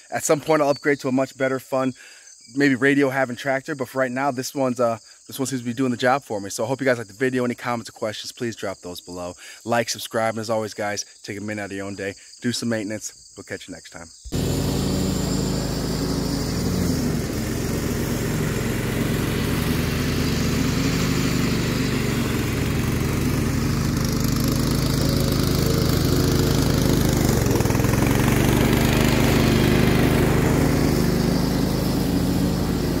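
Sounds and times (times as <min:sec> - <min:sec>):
riding mower engine running: 0:14.3 - 0:33.0.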